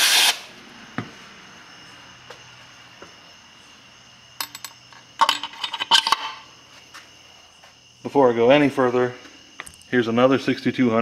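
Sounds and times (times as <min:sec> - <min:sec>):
metal shaft clinking: 0:04.4 - 0:06.4.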